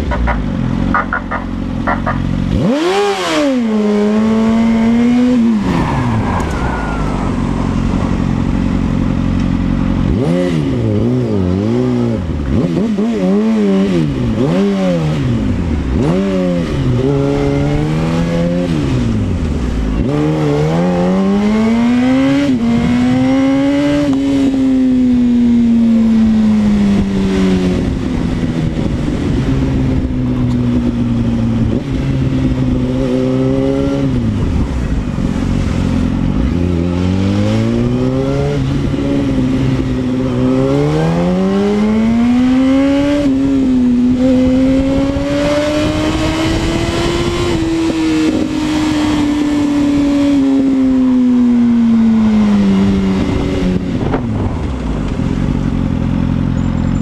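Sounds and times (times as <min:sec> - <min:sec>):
motorcycle engine revving: 0:00.0 - 0:57.0
wind noise rushing: 0:03.7 - 0:09.3, 0:36.6 - 0:55.4.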